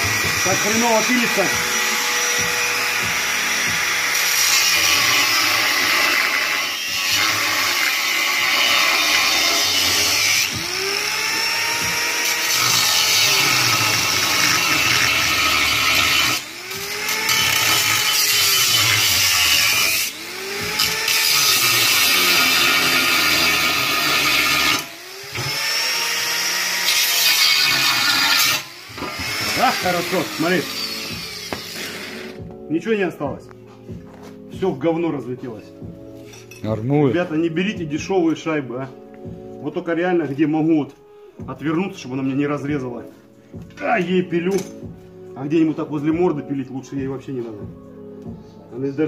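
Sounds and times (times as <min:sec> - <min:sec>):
angle grinder cutting metal pipe: 0:00.0 - 0:32.4.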